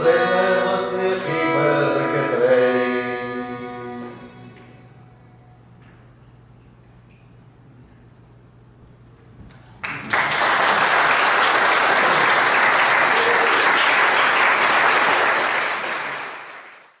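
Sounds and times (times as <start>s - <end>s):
audience applauding: 9.8s - 17.0s.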